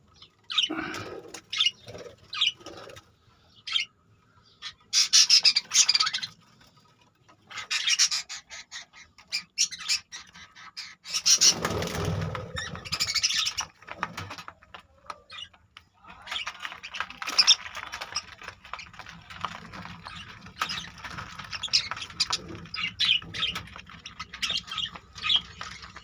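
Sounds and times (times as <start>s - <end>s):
budgerigars chirping and squawking: 0.1s - 14.4s, 15.3s - 15.6s, 16.3s - 26.0s.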